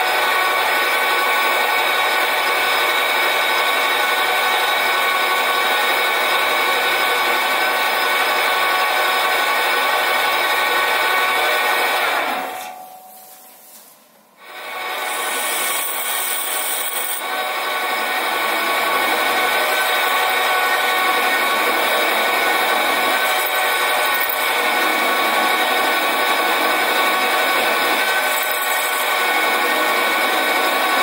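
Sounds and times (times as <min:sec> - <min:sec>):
metal lathe whining: 0:14.4 - 0:31.0.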